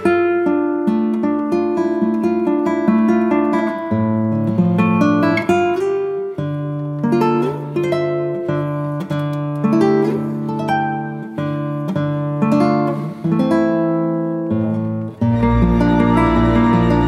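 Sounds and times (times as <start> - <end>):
acoustic guitar melody: 0.0 - 17.0
held bass notes: 15.2 - 17.0.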